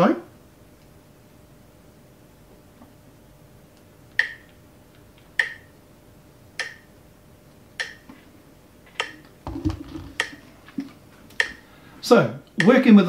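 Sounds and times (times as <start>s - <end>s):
metronome clicks: 4.1s - 4.6s, 5.4s - 5.7s, 6.6s - 6.9s, 7.8s - 8.1s, 9.0s - 9.3s, 11.3s - 11.6s, 12.5s - 12.8s
low knock and rustle: 9.4s - 10.3s.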